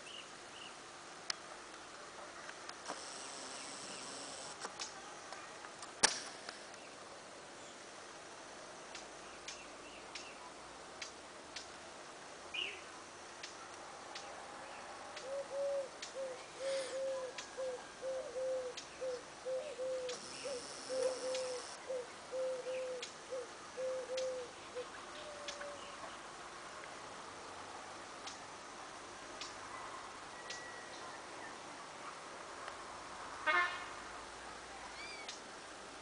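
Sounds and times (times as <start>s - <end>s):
faint scattered clicks: 1.3s - 6.9s, 8.9s - 10.4s, 11.0s - 11.8s, 13.4s - 14.3s, 16.0s - 16.2s, 20.1s - 21.8s, 28.2s - 28.4s
bird calling with low notes: 3.0s - 4.6s, 15.2s - 26.2s.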